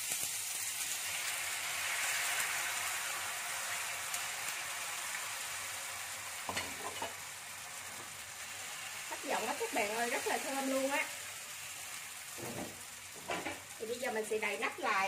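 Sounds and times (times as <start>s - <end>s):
batter sizzling in a frying pan: 0.0s - 15.0s.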